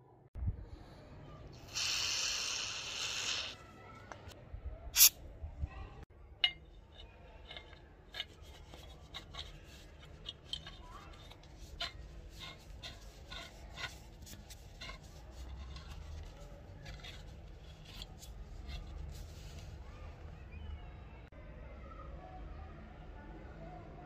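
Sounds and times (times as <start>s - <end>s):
metal threads scraping and ticking: 6.4s - 19.1s.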